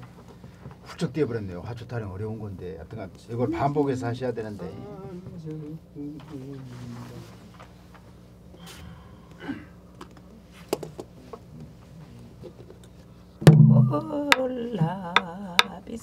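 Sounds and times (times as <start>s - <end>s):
barrel drum struck with stick: 13.4s - 14.4s
person singing with wide vibrato: 13.7s - 16.0s.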